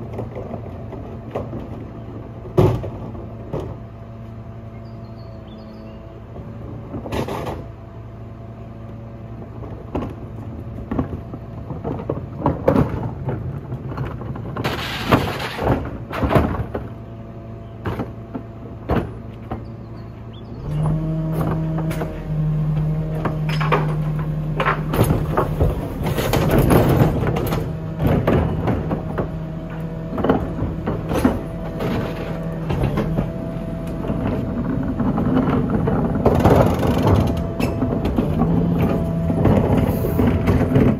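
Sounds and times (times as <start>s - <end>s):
garbage truck engine running: 0.0s - 40.9s
hydraulic bin lifter: 9.4s - 40.9s
plastic bins knocking and clattering: 10.8s - 17.0s, 23.2s - 40.9s.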